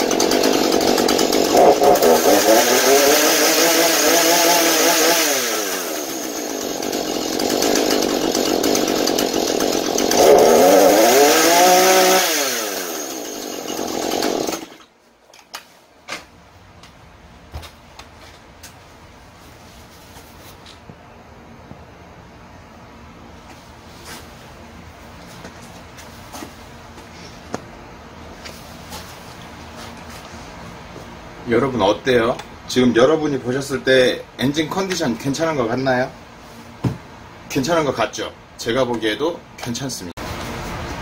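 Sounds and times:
chainsaw engine revving: 0.0s - 14.8s.

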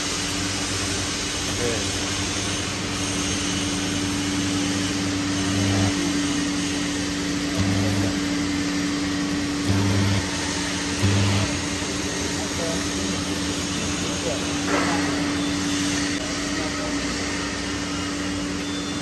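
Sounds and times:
welding arc hissing: 0.0s - 14.7s
electrical hum: 0.0s - 16.2s
low buzz: 3.7s - 12.0s.

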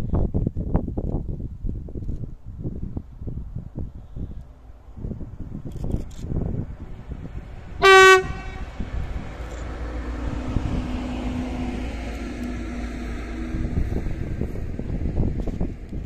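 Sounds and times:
diesel locomotive engine: 3.1s - 16.0s
train wheels rolling on rails: 5.7s - 16.0s
locomotive horn blast: 7.8s - 10.1s.

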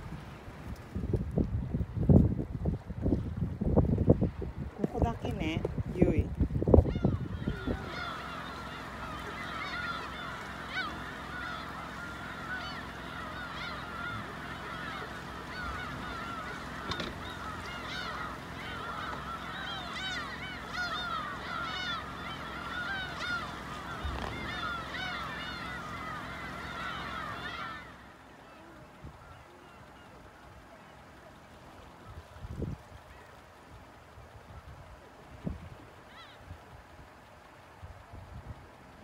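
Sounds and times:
geese honking: 6.9s - 30.9s.

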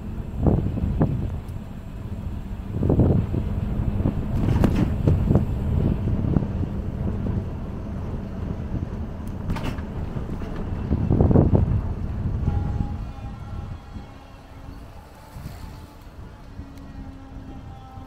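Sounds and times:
low rumble from bicycle ride: 0.0s - 18.0s
wind buffeting microphone: 0.0s - 18.0s
knocks and rattles: 9.4s - 11.0s.

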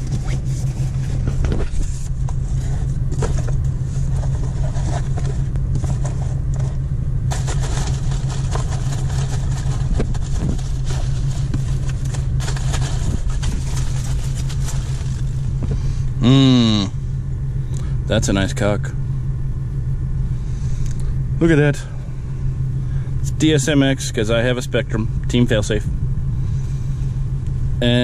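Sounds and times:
rummaging through packing peanuts: 0.0s - 15.6s
car engine idling: 0.0s - 28.0s.

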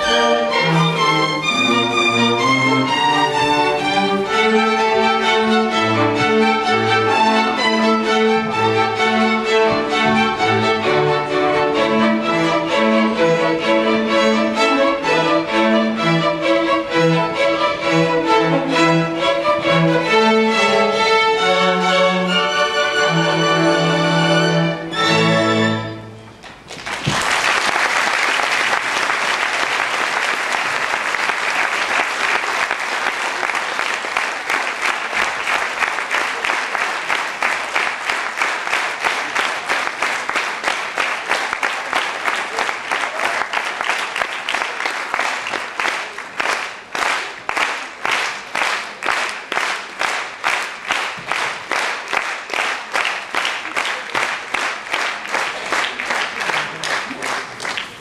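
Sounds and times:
audience applauding: 26.4s - 58.0s.

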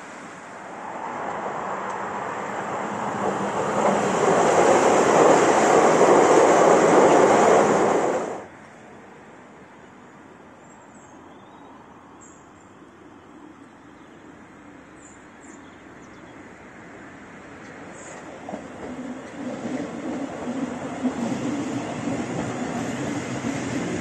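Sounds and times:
electric train passing: 0.0s - 8.5s, 16.5s - 24.0s
outdoor background noise: 0.0s - 24.0s.

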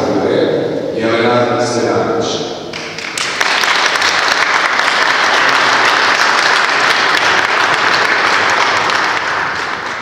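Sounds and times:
audience clapping: 2.7s - 10.0s.

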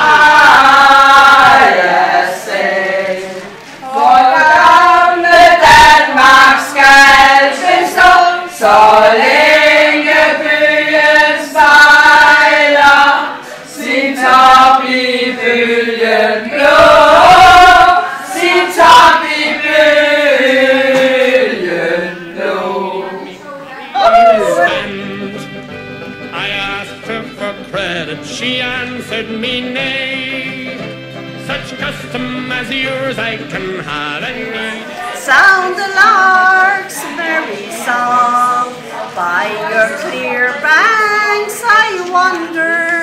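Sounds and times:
women singing unaccompanied: 0.0s - 25.2s, 35.0s - 43.0s.

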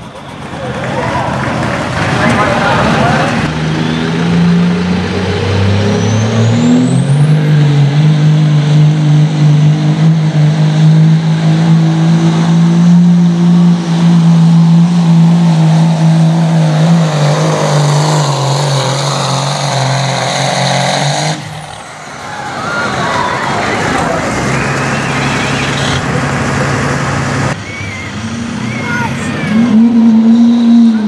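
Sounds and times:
diesel engine at high revs: 0.0s - 31.0s
high whistle: 24.4s - 26.0s.

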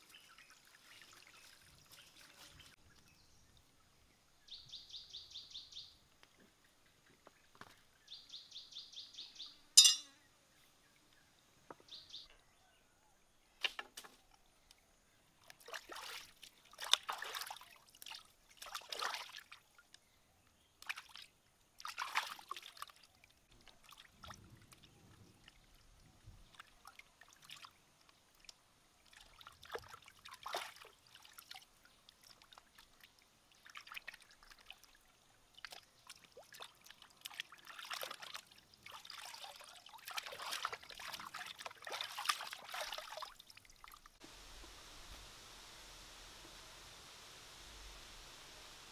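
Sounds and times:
water splashing and sloshing: 0.0s - 2.8s, 15.3s - 19.8s, 20.8s - 45.2s.

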